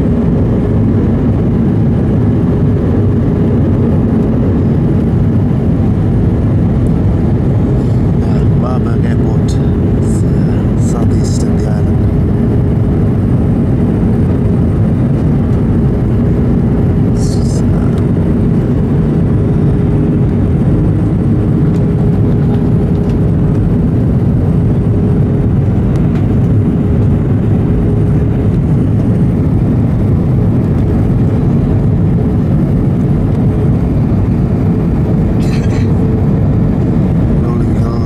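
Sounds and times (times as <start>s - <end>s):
airliner cabin engine rush: 0.0s - 38.0s.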